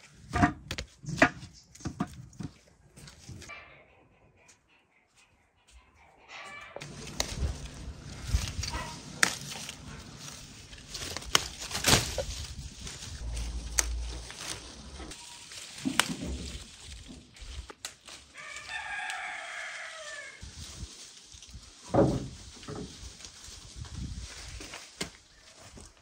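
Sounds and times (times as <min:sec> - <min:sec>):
fruit snapping off branches: 0:06.8 - 0:09.9, 0:10.9 - 0:12.4, 0:13.5 - 0:14.5, 0:15.8 - 0:16.4
branches rustling: 0:06.8 - 0:26.0
rooster crowing: 0:18.4 - 0:20.4.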